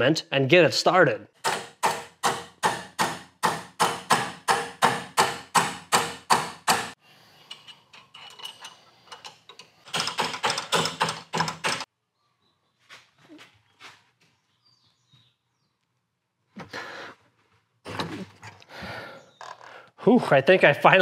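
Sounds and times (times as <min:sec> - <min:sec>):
mallet striking steel bar: 0:01.5 - 0:07.0.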